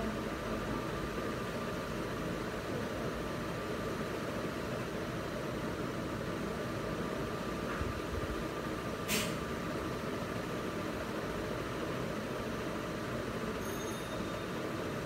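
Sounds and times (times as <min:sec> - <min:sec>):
brief sharp hiss: 0:09.0 - 0:09.5.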